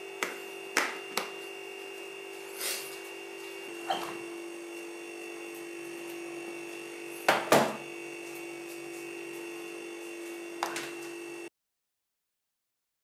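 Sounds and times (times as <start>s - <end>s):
refrigerator hum: 0.0s - 11.5s
bowl knocking on shelf: 7.3s - 7.8s.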